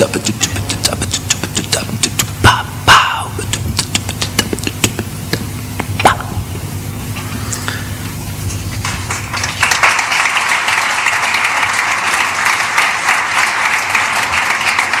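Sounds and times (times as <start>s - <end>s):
audience applause: 8.8s - 15.0s.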